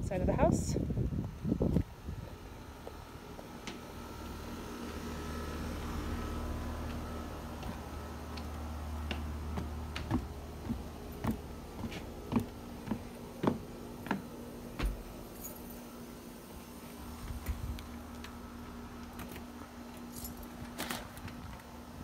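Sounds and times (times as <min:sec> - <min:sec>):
footsteps on deck stairs: 0:06.8 - 0:15.6.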